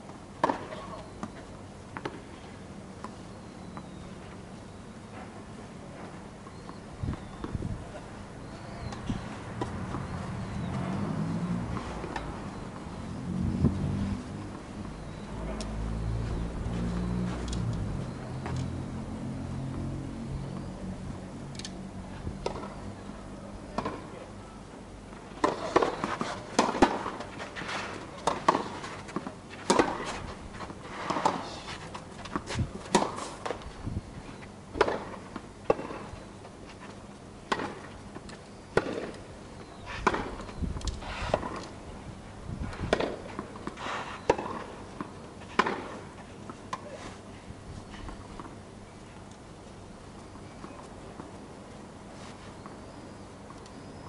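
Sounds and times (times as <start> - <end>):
tennis balls bouncing on court: 0.4 - 2.3, 8.6 - 13.2, 22.4 - 22.8, 23.6 - 24.1, 25.1 - 27.4, 28.2 - 31.5, 32.2 - 33.7, 34.7 - 36.1, 37.5 - 39.2, 42.7 - 47.0
tennis balls struck by rackets: 0.4 - 2.3, 8.5 - 13.2, 22.4 - 22.8, 23.6 - 24.1, 25.4 - 31.5, 32.2 - 33.6, 34.7 - 36.1, 37.5 - 39.3, 40.0 - 41.7, 42.7 - 47.0.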